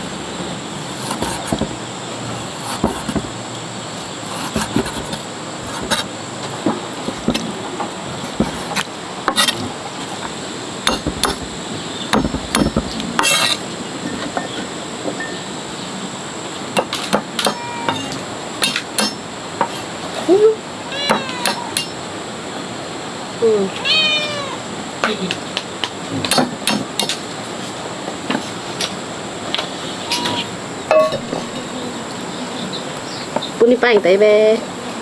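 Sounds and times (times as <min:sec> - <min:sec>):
knife striking wooden block: 0:10.9 - 0:11.5.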